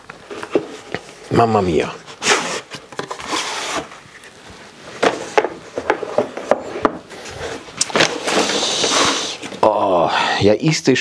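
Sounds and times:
case sliding on wood: 5.0s - 9.6s.

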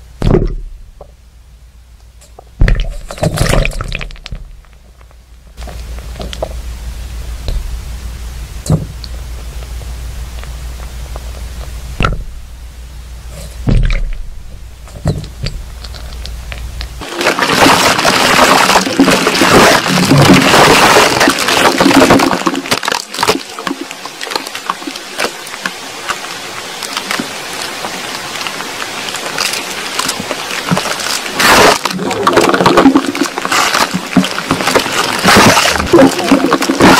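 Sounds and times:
steady low hum: 0.0s - 36.9s
dull thumps: 0.2s - 1.2s, 2.4s - 4.7s, 8.5s - 12.6s, 13.4s - 17.0s
rushing hiss with crackles: 3.9s - 36.9s
scattered crackling and ticks: 8.6s - 12.2s, 14.8s - 36.9s.

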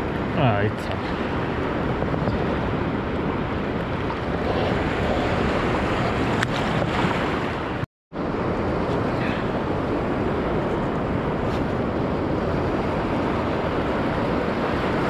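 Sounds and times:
wind buffeting microphone: 0.0s - 15.0s
waves washing on rocks: 2.7s - 7.8s.

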